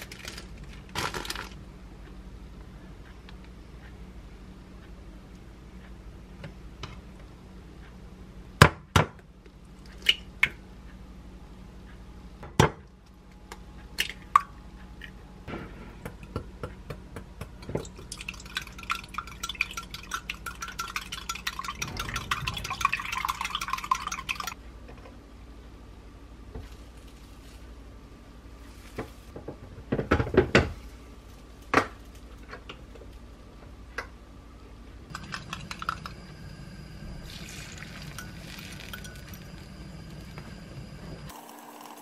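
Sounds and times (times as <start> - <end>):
eggs cracking: 17.4 - 24.6, 35.1 - 36.2, 37.3 - 40.2.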